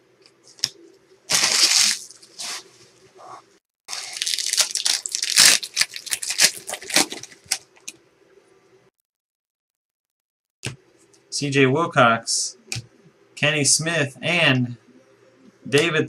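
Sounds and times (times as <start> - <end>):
wrapper crinkling: 1.3 - 2.4, 3.9 - 7.7
wrapper ripping open: 1.3 - 2.6, 3.9 - 7.6.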